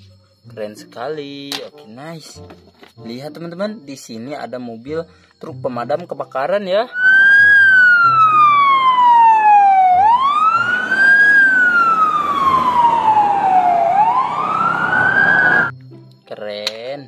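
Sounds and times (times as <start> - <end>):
fire engine siren wailing: 6.9 - 15.7.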